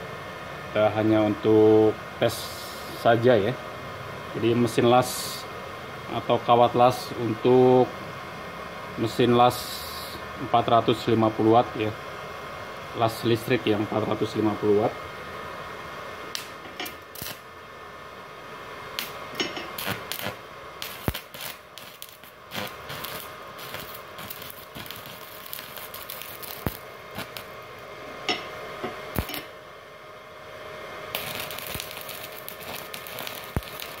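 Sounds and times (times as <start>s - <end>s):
arc welding crackling: 16.2s - 17.6s, 18.9s - 29.6s, 31.1s - 34.0s.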